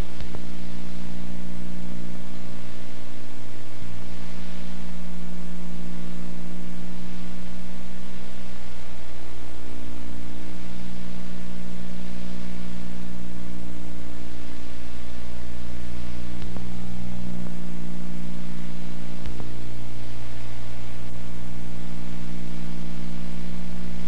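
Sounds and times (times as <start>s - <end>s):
electrical hum with low tones: 0.0s - 24.0s
tape hiss: 0.0s - 24.0s
faint click: 0.1s - 0.4s, 16.4s - 16.7s, 19.2s - 19.5s.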